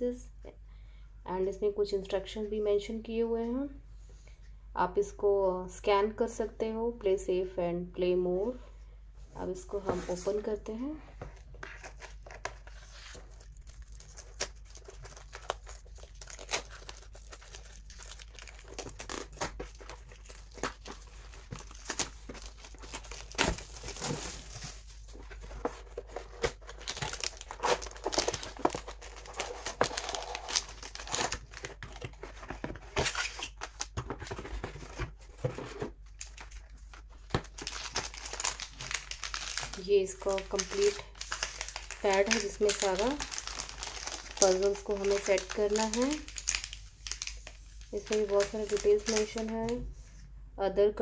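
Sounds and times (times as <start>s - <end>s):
plastic wrapping tearing: 11.7s - 32.3s, 37.3s - 49.7s.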